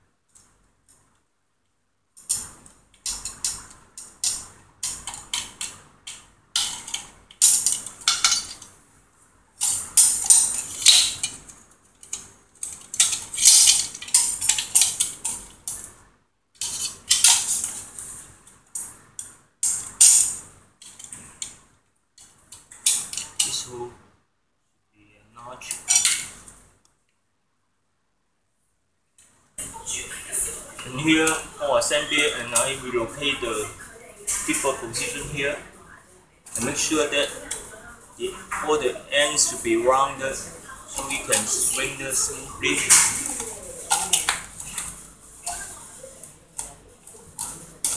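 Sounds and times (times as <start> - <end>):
metal bars and bolts clinking: 6.6 - 8.7, 9.6 - 15.4, 25.8 - 26.5.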